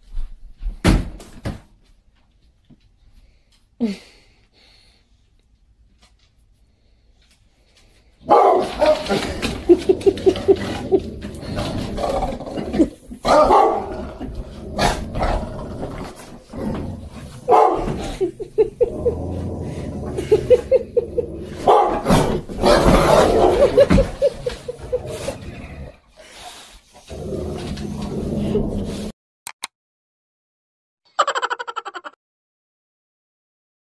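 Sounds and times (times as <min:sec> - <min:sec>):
dogs barking: 0:08.2 - 0:10.6, 0:13.2 - 0:14.1, 0:17.4 - 0:18.8, 0:21.6 - 0:24.7
dog growling low: 0:08.9 - 0:26.2, 0:27.0 - 0:29.1.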